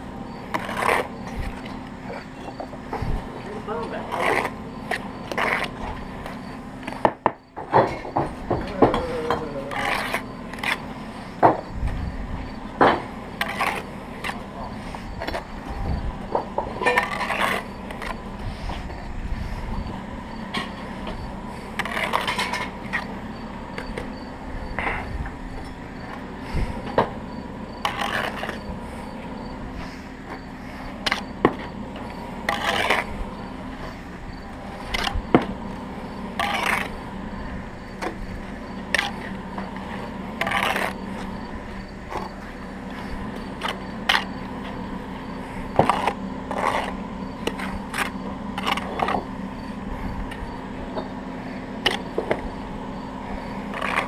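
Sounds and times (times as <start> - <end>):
steady low hum: 0.0 - 54.0
trowel scraping mortar: 0.3 - 7.2, 8.6 - 19.8, 20.5 - 25.0, 25.6 - 52.6, 53.3 - 54.0
bricks clicking and knocking: 0.5 - 11.7, 53.6 - 54.0.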